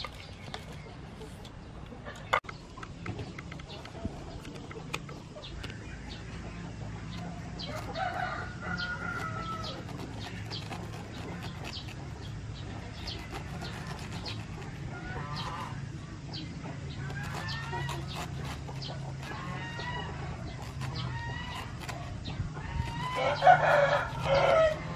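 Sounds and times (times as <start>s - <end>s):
hens clucking: 0.0s - 24.9s
steady low hum: 0.0s - 24.9s
rooster crowing: 7.7s - 9.9s, 22.8s - 24.9s.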